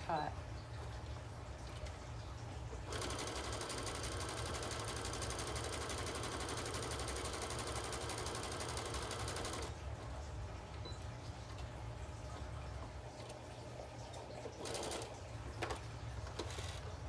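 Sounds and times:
sewing machine stitching: 2.9 - 9.7, 14.5 - 15.1, 16.3 - 16.9.

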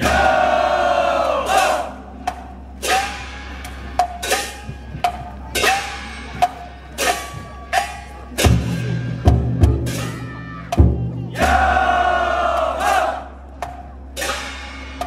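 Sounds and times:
booming drum stroke: 0.0 - 13.0.

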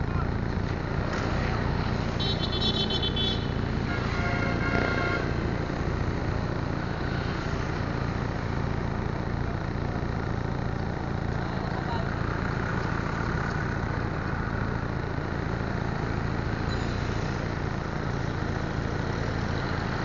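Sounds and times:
idling engines and traffic rumble: 0.0 - 20.0
vehicle horn toots: 2.2 - 5.4.

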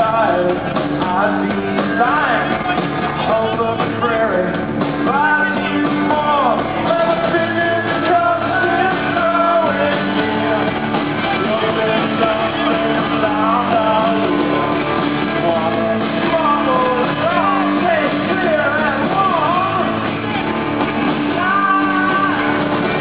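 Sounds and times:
man singing: 0.0 - 20.1, 21.2 - 23.0
live rock band: 0.0 - 23.0.

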